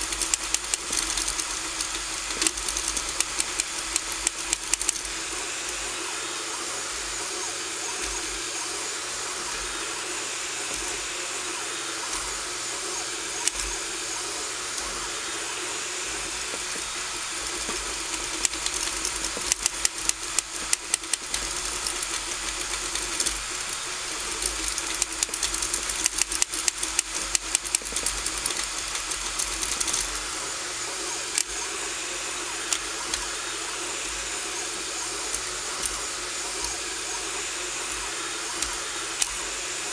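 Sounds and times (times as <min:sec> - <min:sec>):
rapid ticks: 0:00.0 - 0:05.8, 0:16.5 - 0:30.2
fan hiss: 0:00.0 - 0:39.9
stepper motors whirring: 0:00.0 - 0:39.9.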